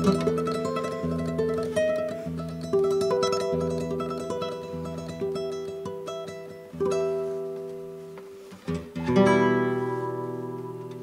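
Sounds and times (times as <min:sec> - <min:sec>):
fingerstyle classical guitar: 0:00.0 - 0:11.0.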